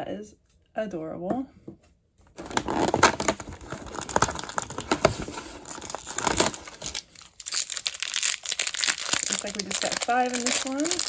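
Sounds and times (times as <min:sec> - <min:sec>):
cardboard crinkling and tearing: 0:02.4 - 0:11.0.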